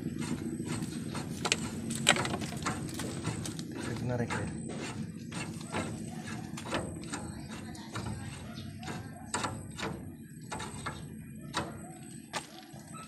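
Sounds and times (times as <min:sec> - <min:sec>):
low background rumble: 0:00.0 - 0:13.0
sharp metal clicks and knocks: 0:00.2 - 0:12.5.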